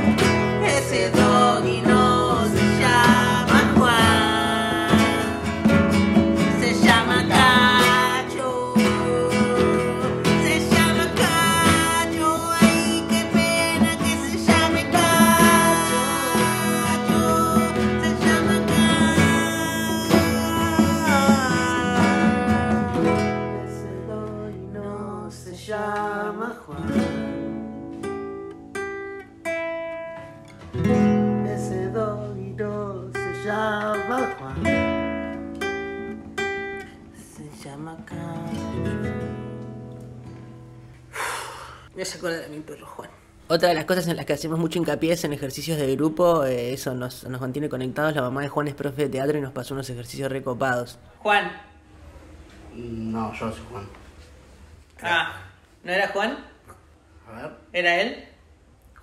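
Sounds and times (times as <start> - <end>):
man singing: 0.0 - 5.8, 6.4 - 27.3, 30.9 - 34.9, 37.4 - 39.1
congas played by hand: 0.0 - 23.4
acoustic guitars strummed: 0.0 - 41.6.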